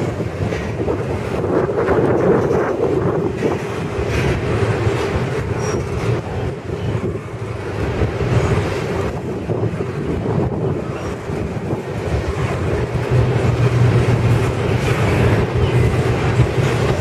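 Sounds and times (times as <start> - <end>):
steel wheels rumbling on rail: 0.0 - 17.0.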